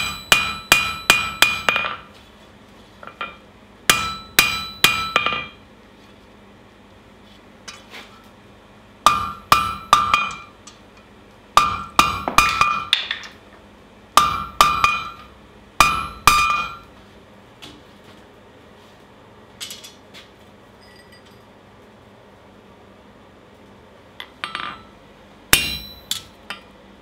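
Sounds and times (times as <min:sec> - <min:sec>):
hammer striking steel on anvil: 0:00.0 - 0:02.1, 0:03.1 - 0:05.6, 0:09.0 - 0:10.8, 0:11.6 - 0:13.3, 0:14.2 - 0:16.9, 0:24.4 - 0:24.9, 0:25.5 - 0:26.6.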